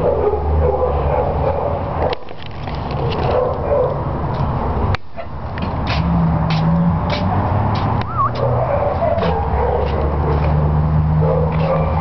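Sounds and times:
dogs barking: 0:00.0 - 0:02.3, 0:03.0 - 0:05.4, 0:08.0 - 0:12.0.

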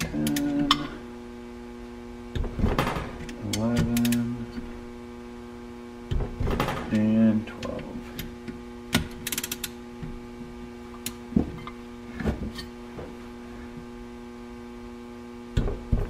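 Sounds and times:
steady electrical hum: 0:00.0 - 0:16.0
torque wrench ratcheting and clicking: 0:09.2 - 0:09.8.

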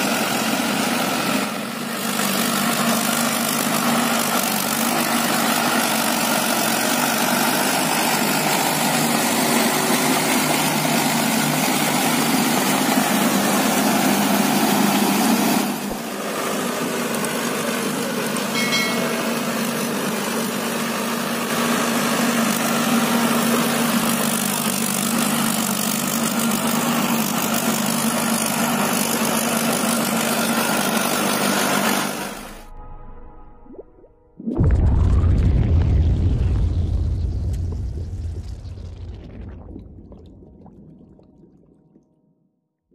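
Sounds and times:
tractor diesel engine running: 0:00.0 - 0:32.8.

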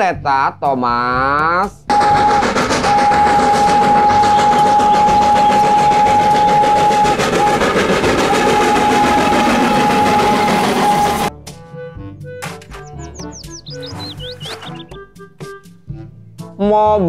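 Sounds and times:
rumble of moving train: 0:01.9 - 0:11.3, 0:12.8 - 0:14.9
train whistle blasts: 0:01.9 - 0:11.3.

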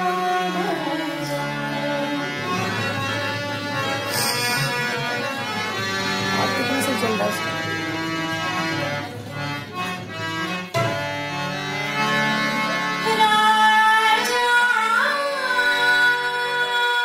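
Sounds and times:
bowed string melody: 0:00.0 - 0:13.2.

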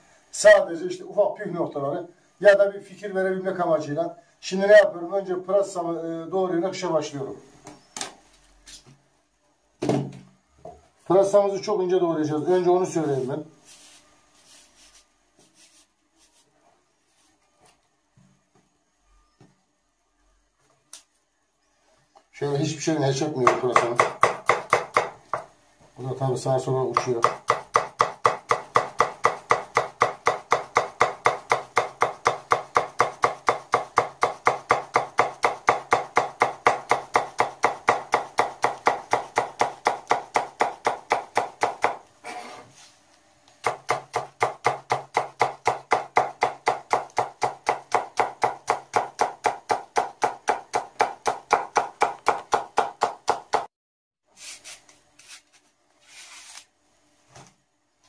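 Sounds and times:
knife chopping on cutting board: 0:23.4 - 0:25.5, 0:26.9 - 0:42.0, 0:43.6 - 0:53.7.

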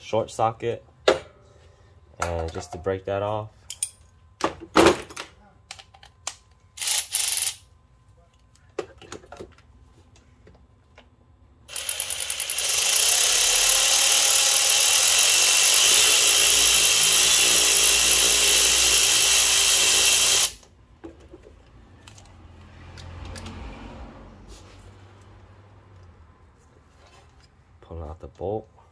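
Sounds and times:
power tool spinning: 0:06.8 - 0:07.6, 0:11.7 - 0:20.6.

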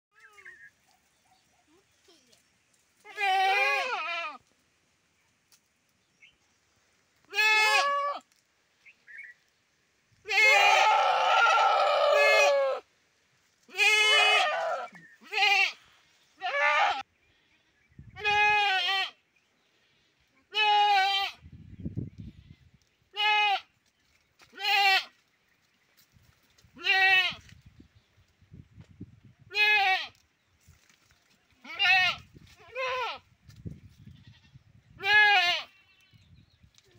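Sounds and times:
goats bleating: 0:03.0 - 0:04.4, 0:07.3 - 0:08.2, 0:13.7 - 0:15.8, 0:16.4 - 0:17.0, 0:18.2 - 0:19.2, 0:20.5 - 0:21.4, 0:23.2 - 0:23.7, 0:24.5 - 0:25.1, 0:26.8 - 0:27.4, 0:31.6 - 0:33.2, 0:35.0 - 0:36.1.

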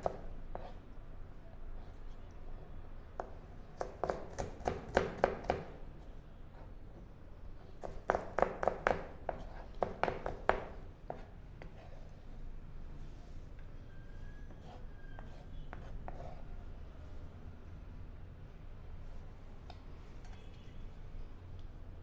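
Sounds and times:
knife chopping on plastic board: 0:07.8 - 0:11.2.

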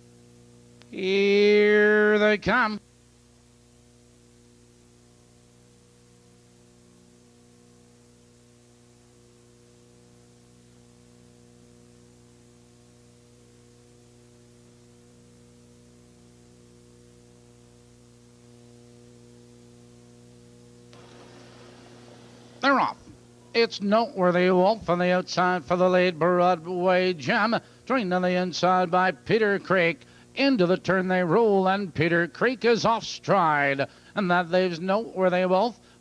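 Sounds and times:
electrical mains hum: 0:00.0 - 0:36.0
light hiss: 0:20.7 - 0:23.6.

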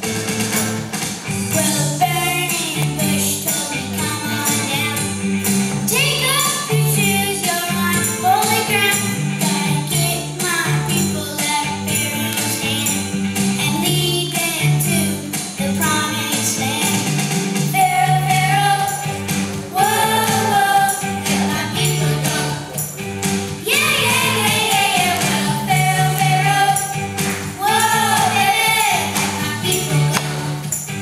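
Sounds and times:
bass line: 0:00.0 - 0:31.0
jingling percussion: 0:00.2 - 0:31.0
people singing: 0:17.7 - 0:23.0, 0:23.6 - 0:31.0.

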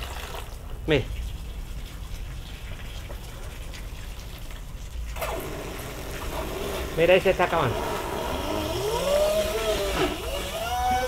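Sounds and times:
rushing water: 0:00.0 - 0:11.0
water jet splashing: 0:00.0 - 0:11.0
water pump motor humming: 0:05.0 - 0:11.0.

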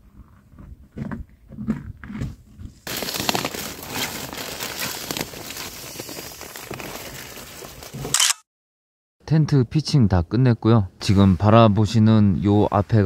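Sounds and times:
nylon crinkling rustle: 0:02.9 - 0:08.1.

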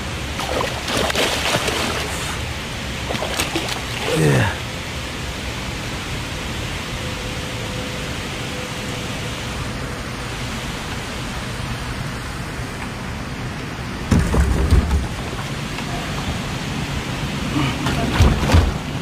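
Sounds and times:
wind and water rushing: 0:00.0 - 0:19.0
low knocks and rumble: 0:14.1 - 0:16.4.

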